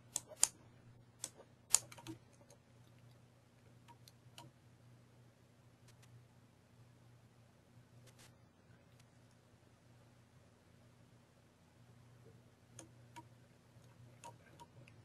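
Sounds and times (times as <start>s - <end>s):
faint low hum: 0.0s - 15.0s
mouse and keyboard clicks: 0.1s - 0.6s, 1.2s - 2.6s, 12.8s - 15.0s.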